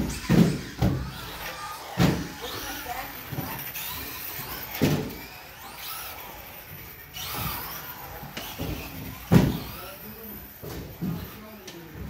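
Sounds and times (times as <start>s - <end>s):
electric toy car motor whine: 0.0s - 12.0s
loud thumps: 8.5s - 9.8s.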